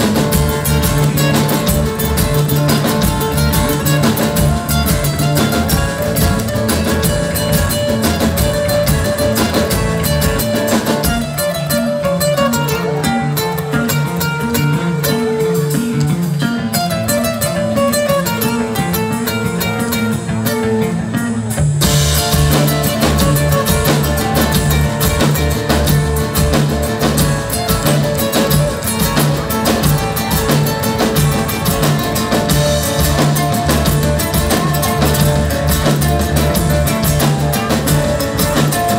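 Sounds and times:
live band instrumental: 0.0 - 38.9
picked guitar melody: 0.0 - 38.9.

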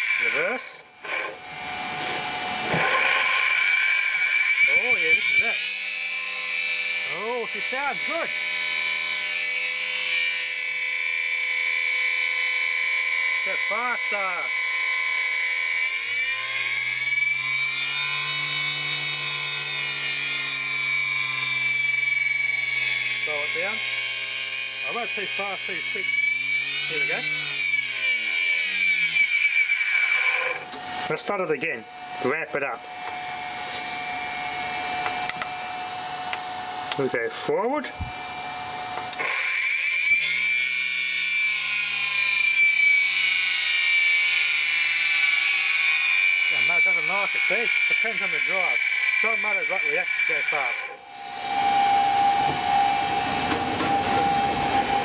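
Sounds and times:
pump motor whining: 0.0 - 55.0
high-pitched drive tone: 33.0 - 37.0, 46.3 - 55.0.

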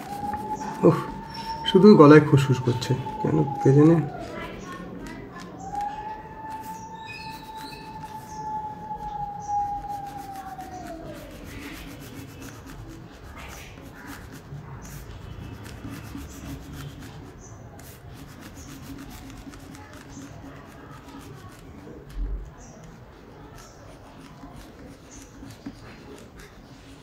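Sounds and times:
steady tone sliding down: 0.0 - 4.4
crayon scratching on paper: 0.0 - 27.0.

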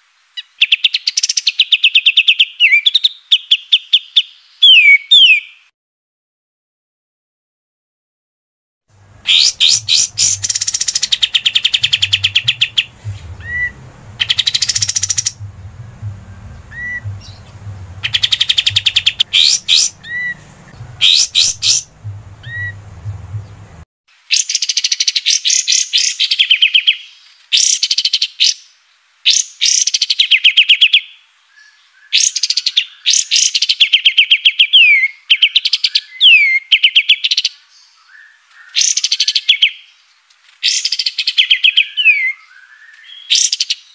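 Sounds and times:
low background hum: 8.9 - 23.8
bird singing rattling trills: 9.1 - 23.8.

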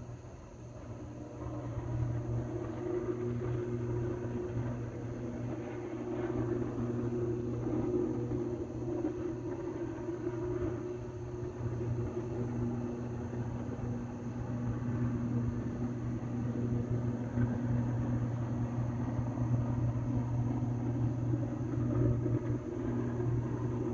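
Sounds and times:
electrical arc humming and buzzing: 0.0 - 23.9.

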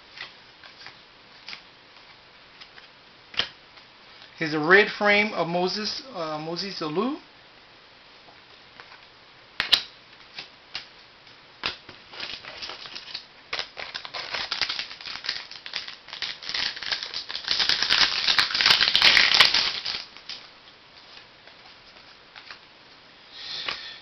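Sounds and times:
wrapper tearing and crinkling: 11.7 - 20.5.

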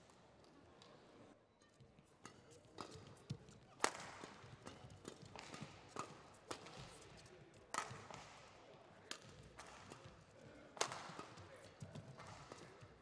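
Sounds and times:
rackets striking shuttlecock: 2.2 - 7.0, 9.1 - 10.2, 10.8 - 13.0.

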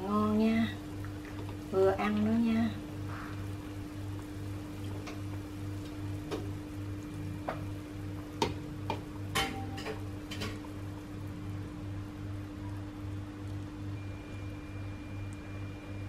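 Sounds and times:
steady hum: 0.0 - 16.0
soup simmering with pops: 0.8 - 11.3.

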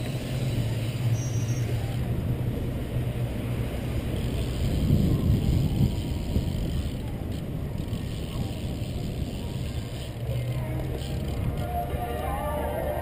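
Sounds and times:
tyres rumbling over track: 0.0 - 13.0
wind rushing over microphone: 2.0 - 10.2.

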